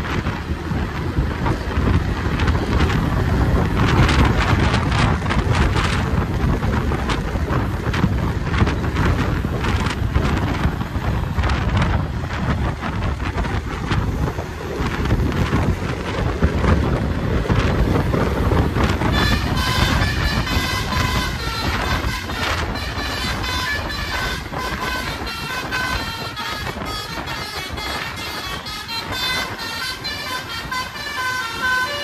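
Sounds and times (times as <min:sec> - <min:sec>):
moving vehicle running noise: 0:00.0 - 0:32.0
wind buffeting the microphone: 0:00.0 - 0:32.0
multi-tone vehicle horn: 0:17.8 - 0:32.0.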